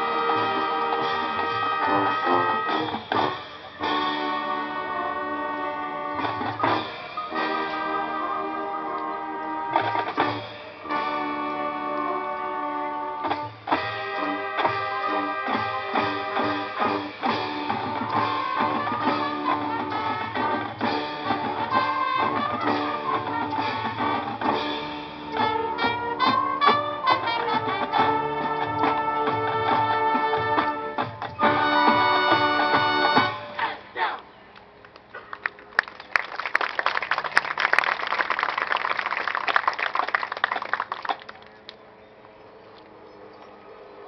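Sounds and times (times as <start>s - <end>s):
marching band playing: 0.0s - 33.9s
crowd applauding: 34.8s - 41.8s.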